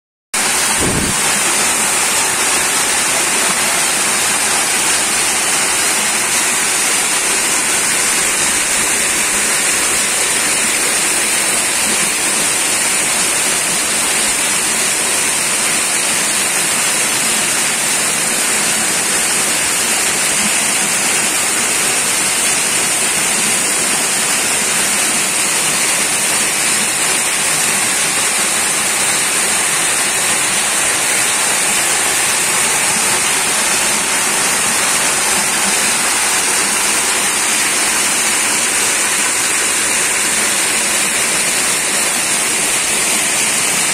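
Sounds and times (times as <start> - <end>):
waterfall rushing over rocks: 0.4 - 43.9.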